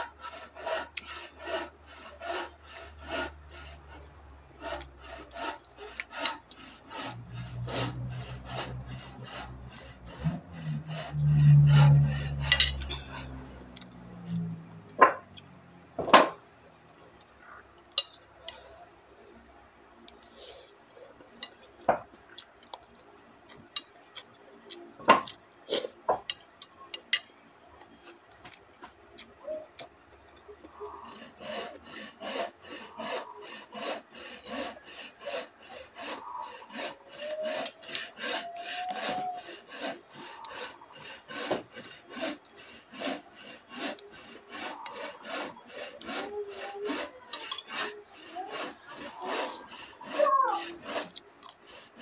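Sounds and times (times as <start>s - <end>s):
hand saw cutting wood: 0.0s - 15.4s, 16.0s - 16.4s, 30.6s - 52.0s.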